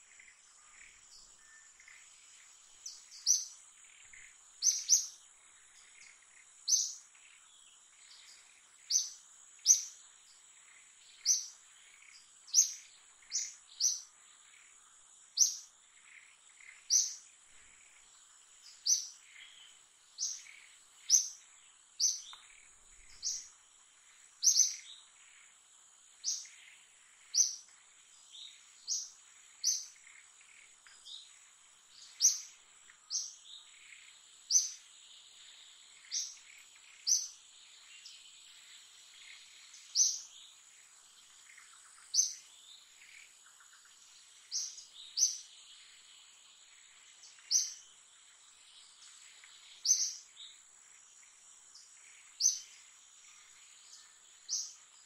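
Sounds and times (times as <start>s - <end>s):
bird chirping: 0.0s - 55.0s.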